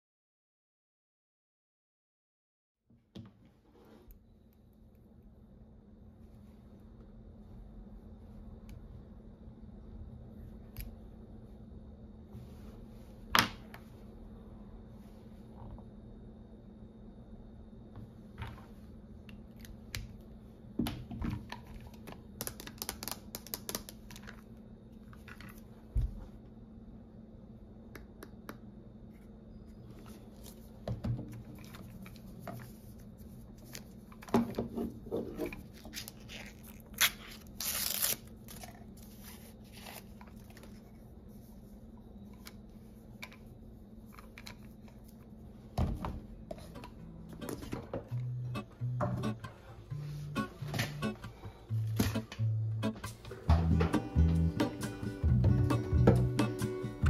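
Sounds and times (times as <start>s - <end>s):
cardboard tearing: 35.8s - 40.1s.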